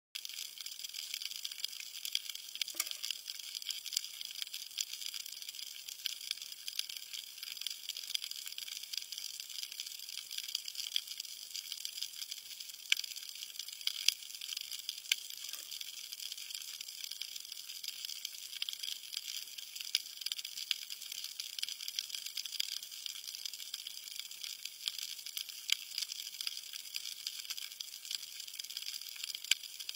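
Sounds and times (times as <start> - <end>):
snapping shrimp clicks underwater: 0.2 - 8.2.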